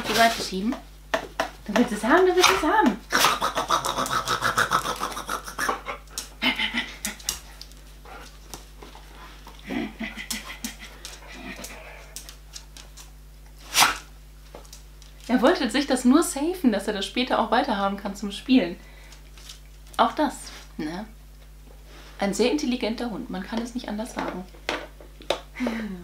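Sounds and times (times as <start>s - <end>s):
dog panting: 4.0s - 8.4s, 9.0s - 12.2s.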